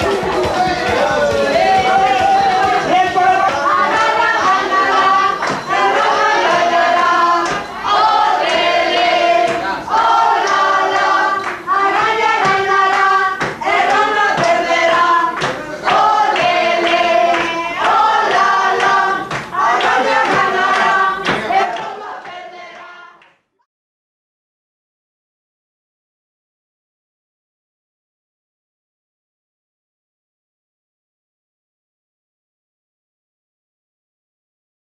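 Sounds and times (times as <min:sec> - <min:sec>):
chorus of voices singing: 0:00.0 - 0:23.4.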